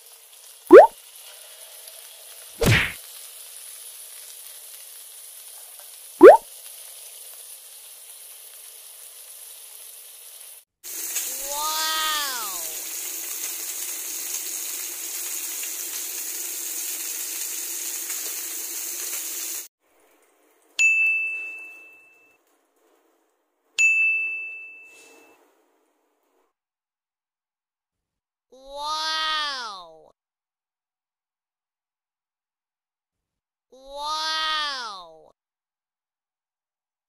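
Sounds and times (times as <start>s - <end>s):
fish sizzling on grill: 0.0s - 19.7s, 24.9s - 25.2s
pitched rising and falling tone: 0.7s - 0.9s, 6.2s - 6.4s
bell-like dings: 20.8s - 22.4s, 23.8s - 25.3s.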